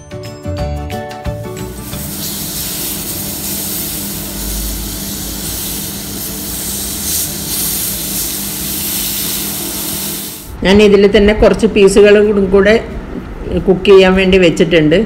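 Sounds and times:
chicken sizzling in grill pan: 1.7s - 10.5s.

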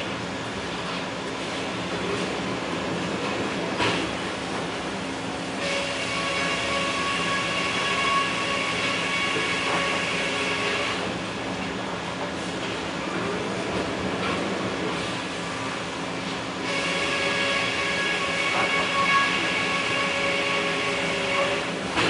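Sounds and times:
sawmill machinery humming: 15.2s - 22.0s.

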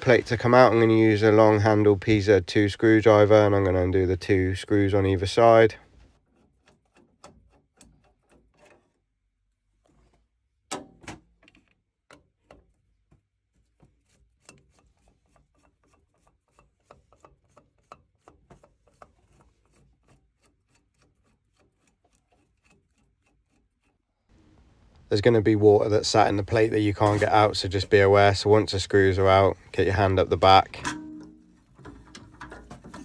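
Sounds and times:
screwdriver clicking and scraping: 6.2s - 9.0s, 11.4s - 24.1s.

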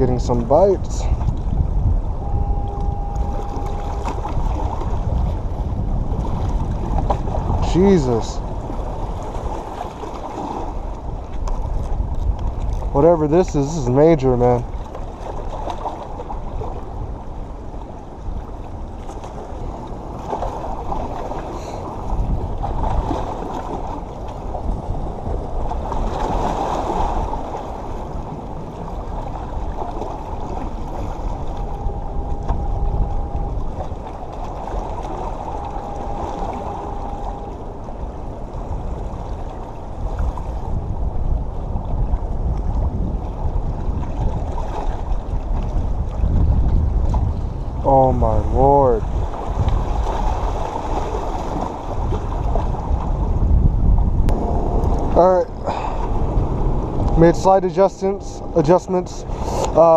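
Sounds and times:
wind buffeting microphone: 0.0s - 59.9s
faint steady tones: 2.0s - 5.3s, 29.9s - 39.9s, 54.3s - 59.9s
waves washing against rocks: 2.8s - 41.0s, 48.8s - 59.9s.

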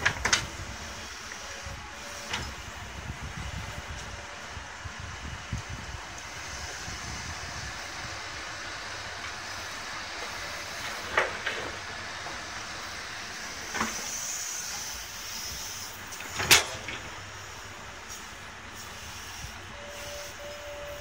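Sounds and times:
excavator engine running: 0.0s - 21.0s
high hiss: 6.2s - 16.4s, 17.1s - 21.0s.

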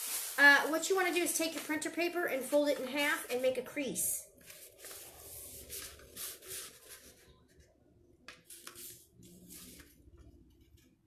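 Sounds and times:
paper folding rustle: 0.0s - 3.6s, 4.4s - 7.6s, 8.3s - 10.0s.

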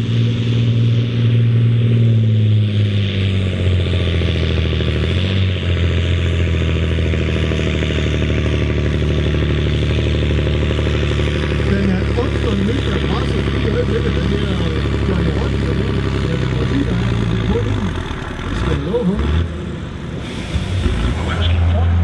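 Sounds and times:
tractor diesel engine under load: 0.0s - 22.0s.

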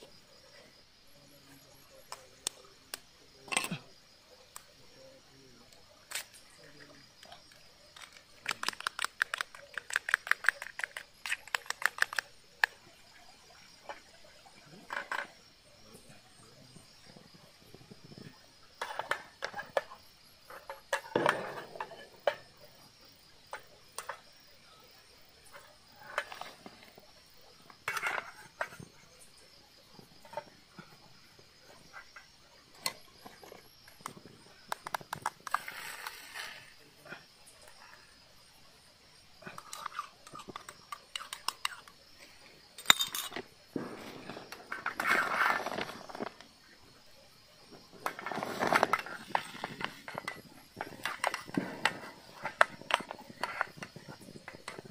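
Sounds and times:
utensil clinking against metal cup: 42.8s - 43.4s.

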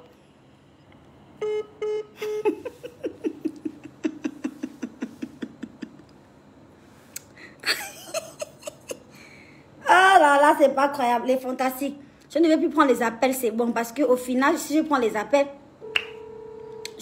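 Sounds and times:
woman laughing: 2.2s - 6.1s, 7.6s - 9.1s.

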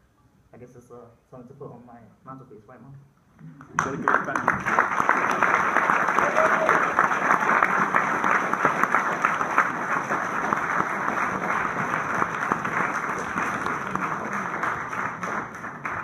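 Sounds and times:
audience applauding: 3.6s - 16.0s.

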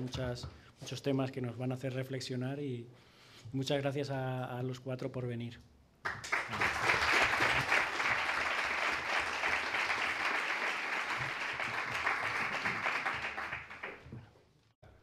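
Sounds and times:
audience applauding: 6.1s - 14.2s.

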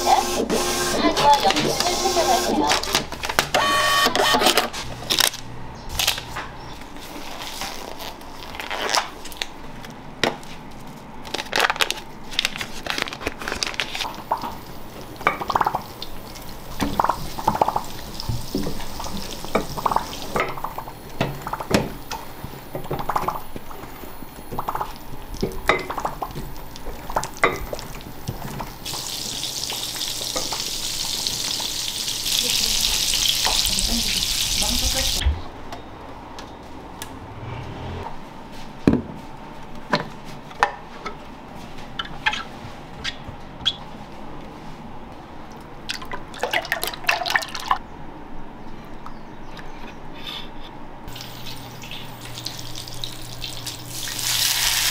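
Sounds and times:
oil sizzling in a pan: 28.8s - 35.2s, 51.1s - 54.9s.

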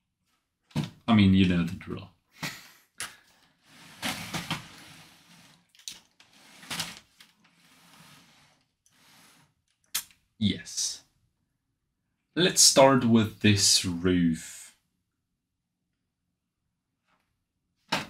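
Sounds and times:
plastic model scraping on wood: 3.6s - 9.6s.

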